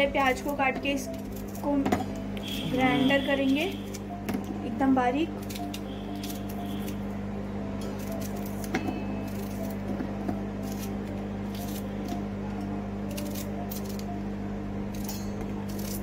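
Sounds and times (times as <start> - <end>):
steady low hum: 0.0 - 16.0
knife slicing onion: 5.4 - 7.0, 7.8 - 12.2, 14.9 - 16.0.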